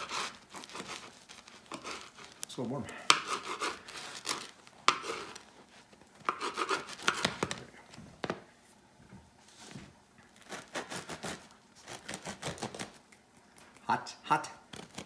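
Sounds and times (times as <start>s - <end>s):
bread knife sawing: 0.0s - 2.4s, 3.1s - 5.4s, 6.2s - 7.4s, 10.4s - 12.9s.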